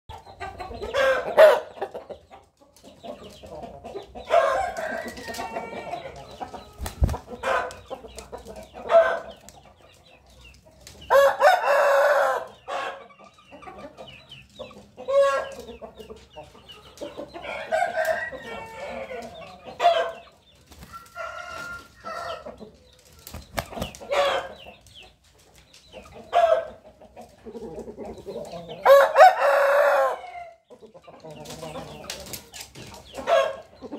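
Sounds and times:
chickens clucking: 0.1s - 33.9s
roosters crowing: 0.5s - 1.9s, 4.2s - 7.8s, 11.1s - 13.1s, 17.2s - 20.2s, 20.8s - 22.6s, 23.6s - 24.6s, 28.6s - 30.6s, 33.2s - 33.6s.

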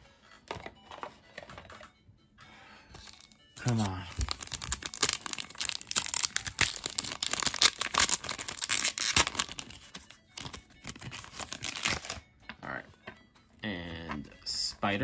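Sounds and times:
foil wrapper crinkling and tearing: 3.0s - 12.2s.

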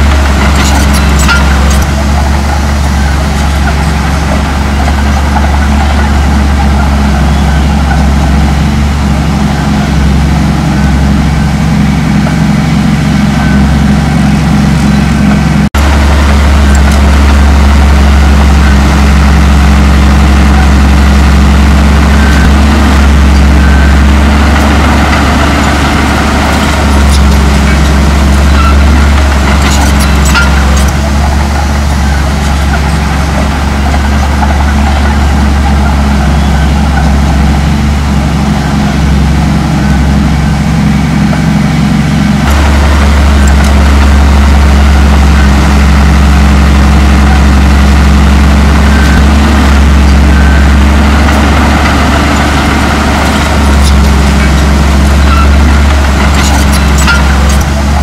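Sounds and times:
bulldozer diesel engine running: 0.0s - 58.0s.

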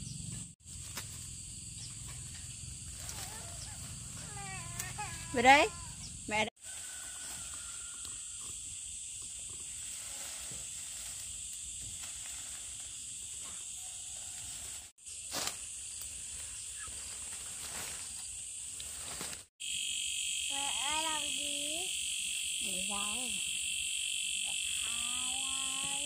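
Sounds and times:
insects chirring chorus: 0.0s - 18.8s, 19.6s - 26.0s.

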